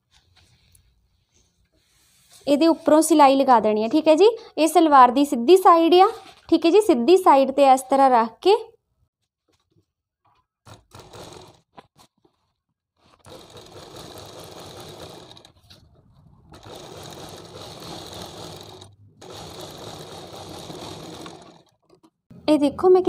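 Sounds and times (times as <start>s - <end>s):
sewing machine stitching: 10.6s - 12.4s, 13.0s - 22.2s.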